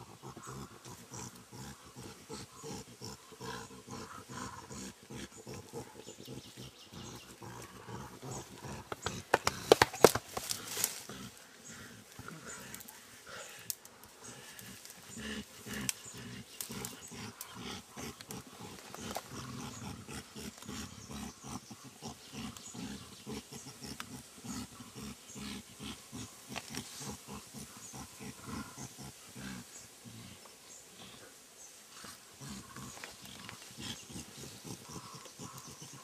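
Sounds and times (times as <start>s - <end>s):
gorillas low pulsed vocalizations: 0.0s - 36.0s
leaves snapping and rustling: 8.9s - 11.2s.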